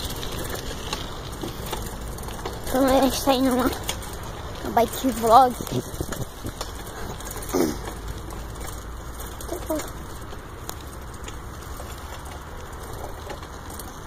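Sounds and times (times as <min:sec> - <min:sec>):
wind rumble on microphone: 0:03.7 - 0:07.4.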